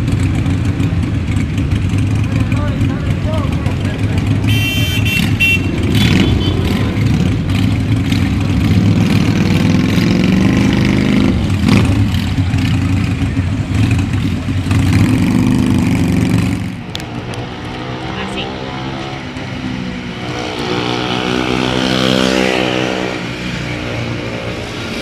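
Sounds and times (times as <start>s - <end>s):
motorcycle engines rumbling: 0.0s - 25.0s.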